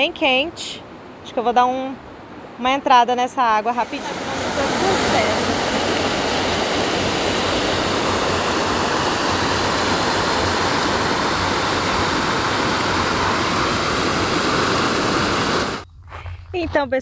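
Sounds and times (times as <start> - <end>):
small waterfall rushing: 3.8 - 15.8.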